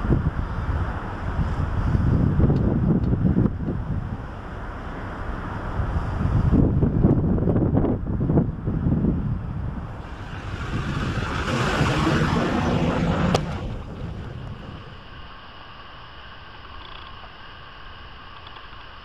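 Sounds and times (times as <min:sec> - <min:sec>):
wind buffeting microphone: 0:00.0 - 0:04.6, 0:05.4 - 0:15.3.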